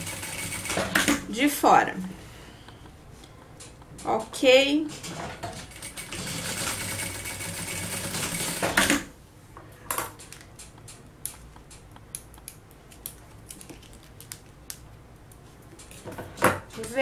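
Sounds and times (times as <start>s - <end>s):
sewing machine stitching: 0.0s - 1.2s, 5.1s - 9.1s.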